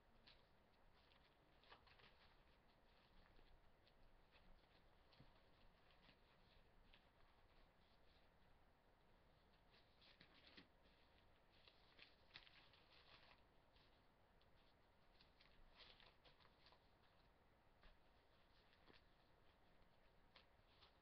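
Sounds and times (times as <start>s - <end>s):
paper pages rustling and turning: 9.6s - 21.0s.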